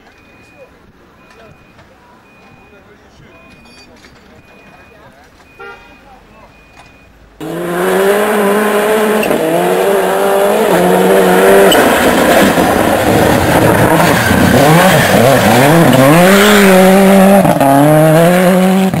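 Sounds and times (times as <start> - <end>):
rally car engine revving: 7.4 - 19.0.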